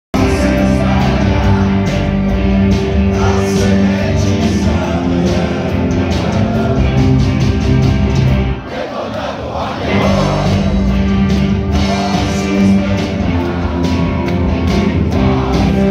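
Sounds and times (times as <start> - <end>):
drums and cymbals: 0.2 - 8.6, 9.8 - 15.9
electric guitars holding chords: 0.2 - 8.7, 9.8 - 15.9
person singing: 3.1 - 7.1, 11.7 - 14.1.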